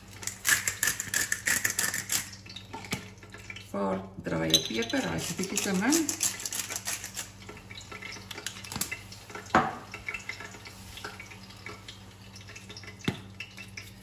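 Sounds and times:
pepper grinder crackle: 0:00.0 - 0:02.4, 0:04.9 - 0:07.6, 0:08.2 - 0:09.1
dripping: 0:00.0 - 0:14.0
faint sizzling: 0:03.6 - 0:14.0.

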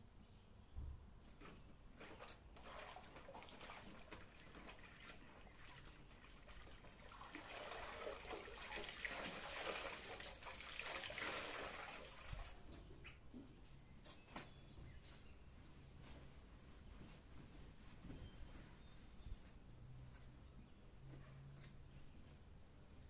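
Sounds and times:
water pouring and trickling: 0:02.0 - 0:12.8
wet cloth swished in water: 0:02.0 - 0:12.8.

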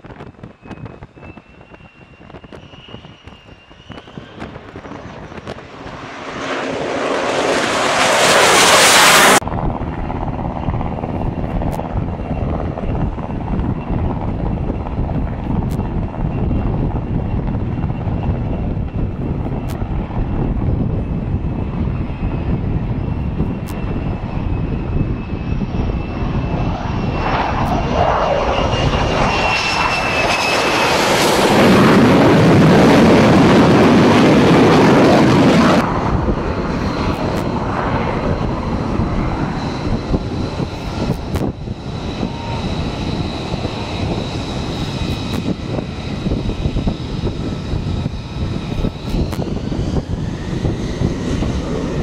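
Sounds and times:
distant jet rumble and whine: 0:00.0 - 0:52.0
jet flying low overhead: 0:00.0 - 0:52.0
fighter jet rushing pass: 0:02.4 - 0:09.5, 0:21.7 - 0:52.0.

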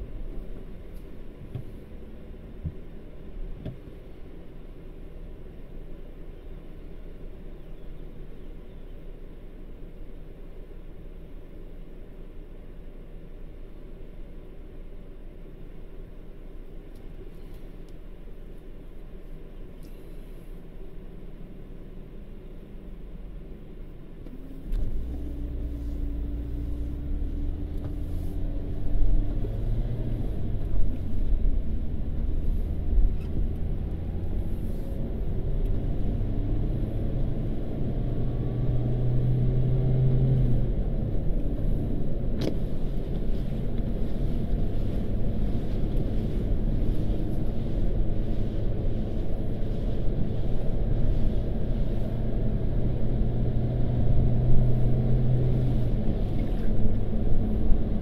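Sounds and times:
road noise inside car: 0:00.0 - 0:58.0
car engine accelerating: 0:24.2 - 0:58.0.

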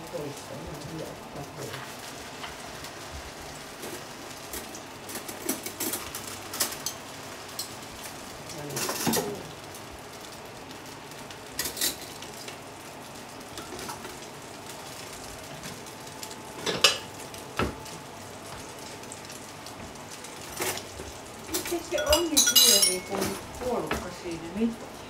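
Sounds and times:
food sizzling in a pan: 0:00.0 - 0:25.0
utensils clinking and scraping: 0:20.4 - 0:23.5.

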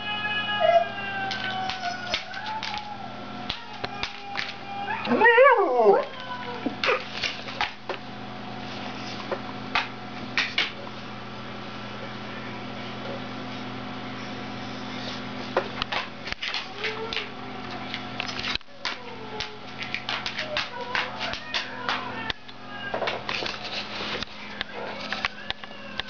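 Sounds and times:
dog howling vocal: 0:00.0 - 0:07.0
steady low hum: 0:00.0 - 0:26.0.

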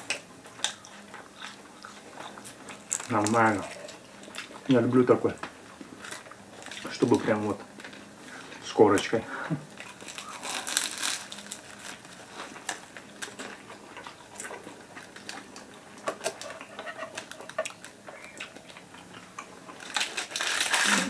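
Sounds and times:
crunchy wrap bitten and chewed: 0:00.0 - 0:04.7, 0:09.7 - 0:21.0.

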